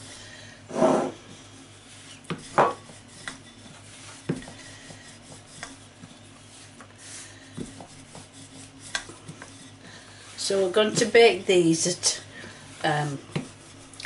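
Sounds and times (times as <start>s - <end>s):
faint steady hum: 0.0s - 14.0s
rolling pin knocking on worktop: 2.3s - 2.9s.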